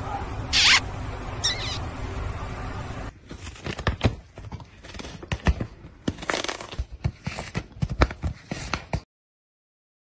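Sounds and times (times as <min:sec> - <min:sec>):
cat rubbing notebook: 0:06.2 - 0:09.0.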